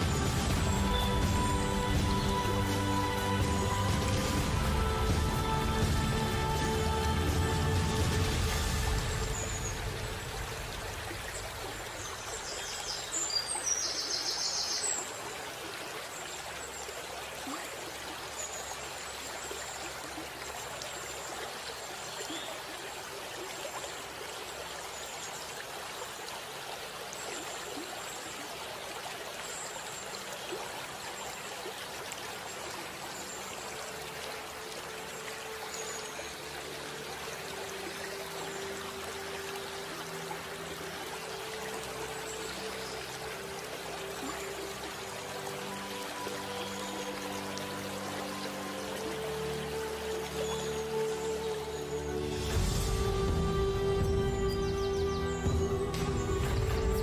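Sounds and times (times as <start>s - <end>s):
running water: 0.0s - 57.0s.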